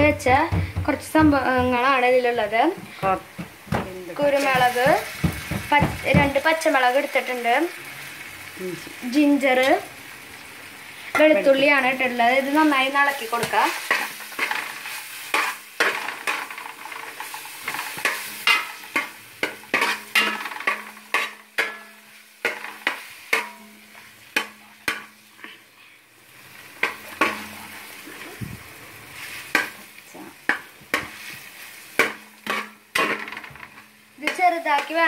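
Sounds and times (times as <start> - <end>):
light sizzle of frying: 0.0 - 35.0
metal spoon stirring and scraping pot: 13.1 - 25.6, 26.8 - 28.4, 30.5 - 35.0.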